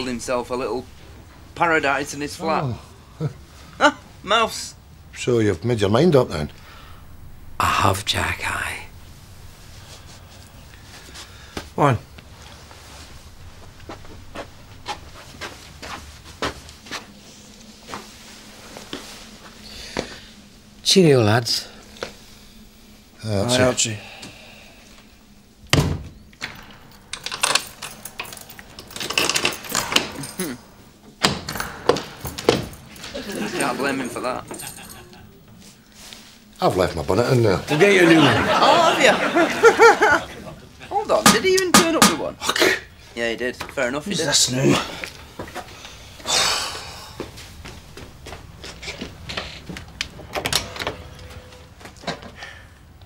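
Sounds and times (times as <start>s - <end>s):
door shutting with a thud: 25.7s - 33.2s
locks clicking and rattling: 26.3s - 33.4s, 49.4s - 52.5s
door handling clicks and knocks: 31.1s - 33.0s.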